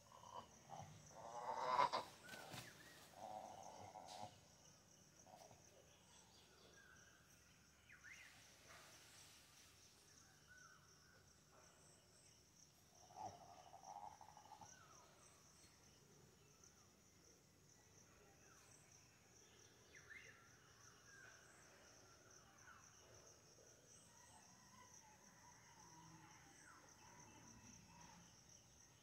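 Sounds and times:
insects chorus: 0.0 - 29.0.

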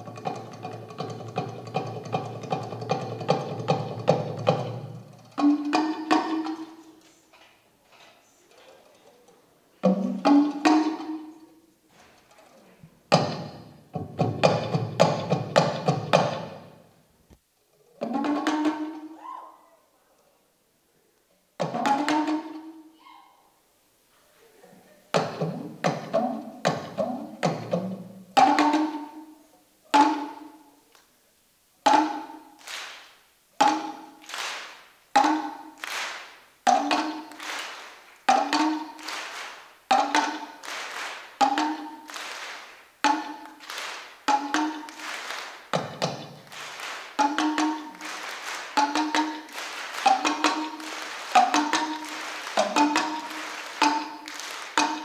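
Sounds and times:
talking drum strikes: 0.0 - 7.0, 9.8 - 11.5, 13.1 - 16.9, 18.0 - 19.2, 21.6 - 22.8, 25.1 - 29.3, 29.9 - 30.6, 31.8 - 32.5, 33.6 - 34.3, 35.1 - 35.9, 36.7 - 40.7, 41.4 - 42.2, 43.0 - 55.0.

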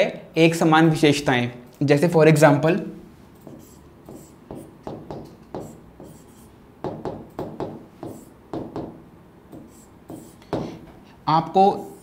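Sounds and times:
marker pen squeaking on board: 3.4 - 6.6, 7.4 - 8.4, 9.5 - 10.7.

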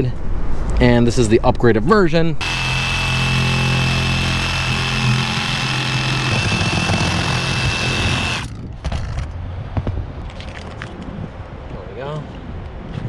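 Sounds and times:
reciprocating saw cutting: 2.4 - 8.6.

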